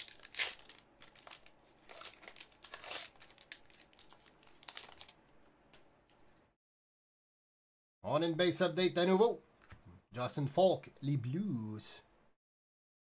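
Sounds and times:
foil wrapper tearing and crinkling: 0:00.0 - 0:05.2.

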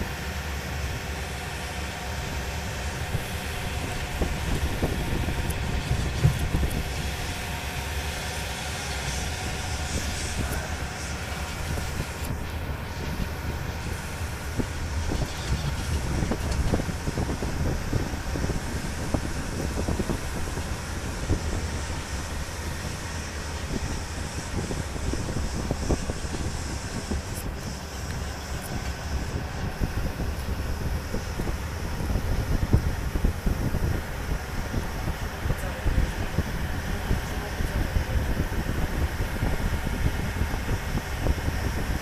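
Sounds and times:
tractor engine running: 0:00.0 - 0:42.0.

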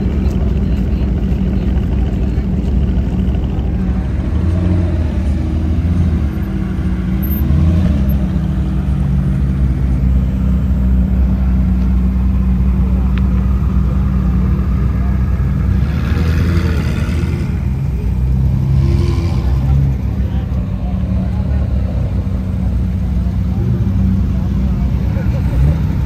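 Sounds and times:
car engine running at low revs: 0:00.0 - 0:26.0.

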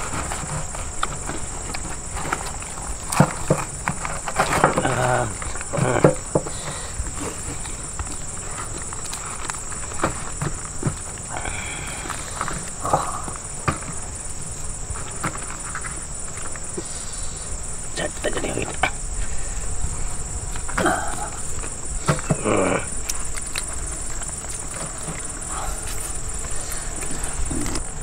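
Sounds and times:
crickets chirring: 0:00.0 - 0:28.0
murmured voices: 0:04.5 - 0:07.8, 0:16.8 - 0:23.2, 0:25.3 - 0:28.0
hands tearing ribs apart: 0:22.4 - 0:27.9.

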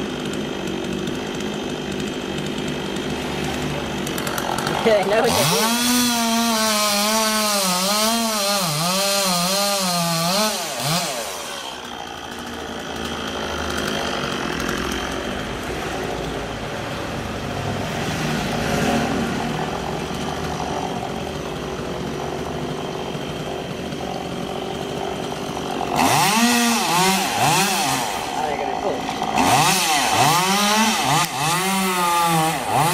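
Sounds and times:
chainsaw cutting wood: 0:00.0 - 0:32.9.

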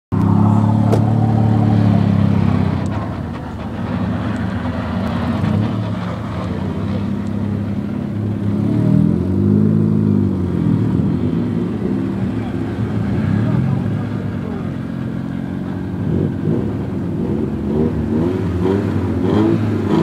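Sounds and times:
car engine revving hard: 0:04.0 - 0:20.0.

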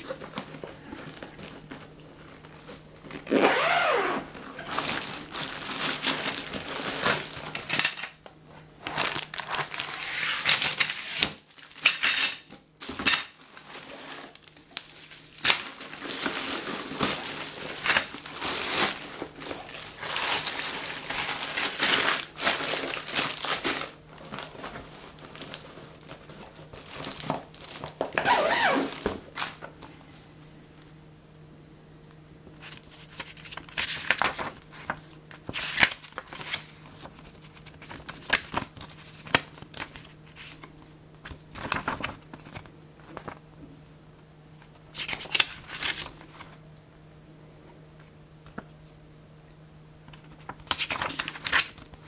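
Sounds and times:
plastic wrapping crinkling: 0:04.3 - 0:07.8, 0:08.8 - 0:12.0, 0:12.8 - 0:29.6
paper pages rustling: 0:08.6 - 0:11.8, 0:13.4 - 0:28.1, 0:32.6 - 0:43.4, 0:44.6 - 0:46.6, 0:50.1 - 0:52.0.

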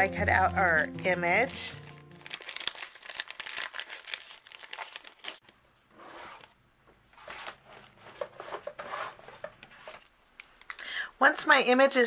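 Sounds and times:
paper and plastic crinkling: 0:00.0 - 0:05.7, 0:07.1 - 0:10.8.

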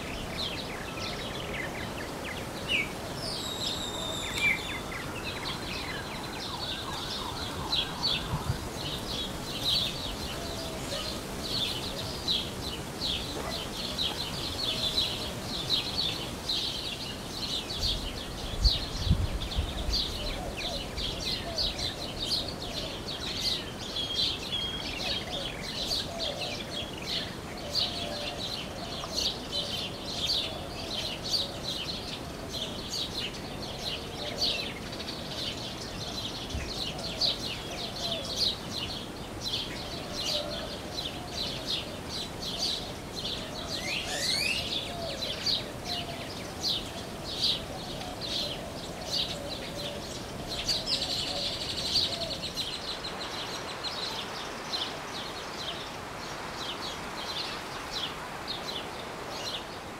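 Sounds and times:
songbirds chirping: 0:00.0 - 0:59.9
rising bird call: 0:03.2 - 0:09.0.

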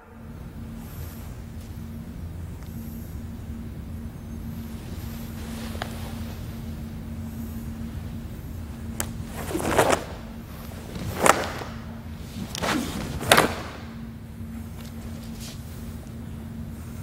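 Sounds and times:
cloth whooshing and snapping: 0:08.9 - 0:14.0.

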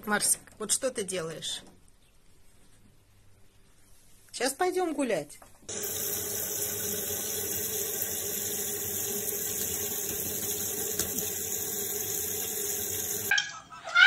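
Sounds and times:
tap water splashing into sink: 0:05.7 - 0:13.3.

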